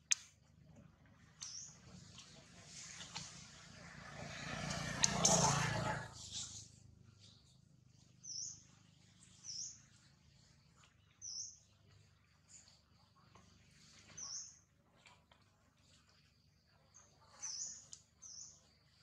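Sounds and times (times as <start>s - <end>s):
faint outdoor background noise: 0.0s - 19.0s
bird chirping: 1.4s - 1.8s.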